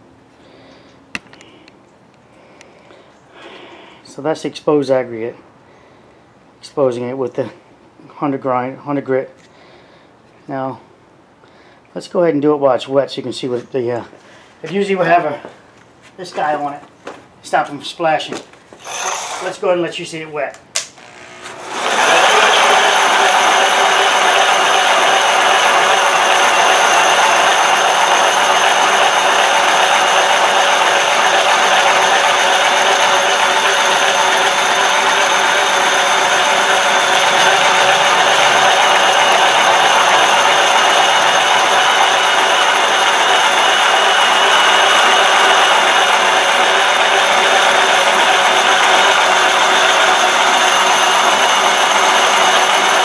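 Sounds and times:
concrete polisher grinding: 18.8 - 19.6, 21.0 - 53.0.

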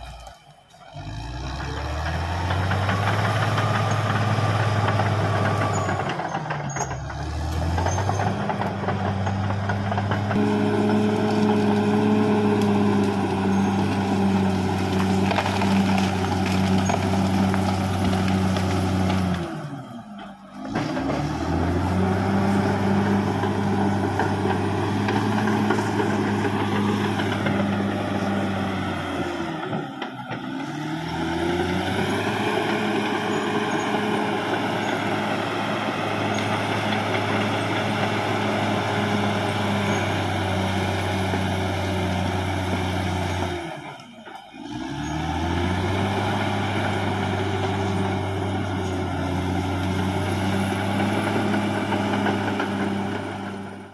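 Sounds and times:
bulldozer diesel engine running: 0.0 - 53.9.

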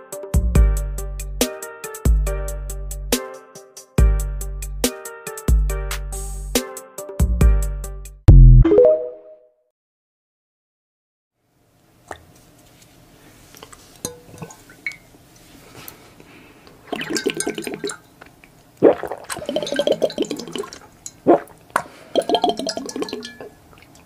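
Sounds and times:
liquid gurgling in glass bottle: 16.8 - 18.1, 18.8 - 24.0.

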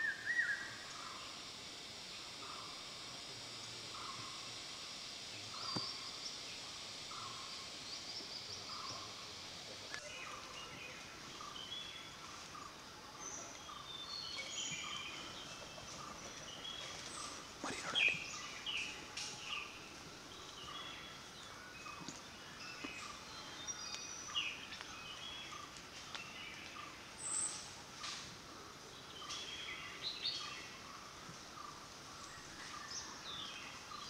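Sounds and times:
background hiss: 0.0 - 34.0
birds chirping and calling: 13.2 - 21.2.

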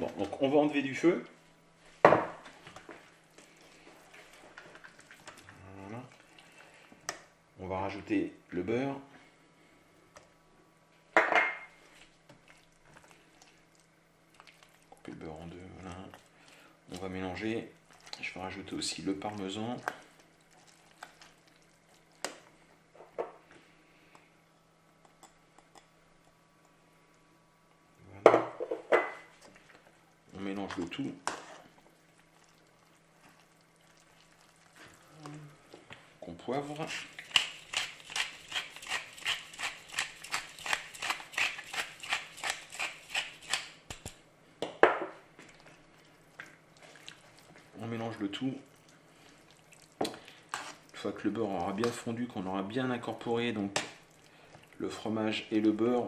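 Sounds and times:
spatula scraping saucepan: 50.5 - 50.9.

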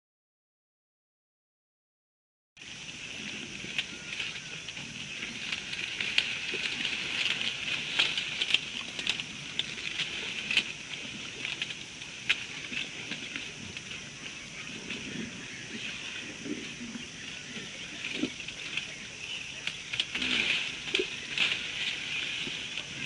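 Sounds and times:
dry vegetation crackling and snapping: 2.6 - 15.0, 17.4 - 23.0
steady high hiss: 2.6 - 23.0.

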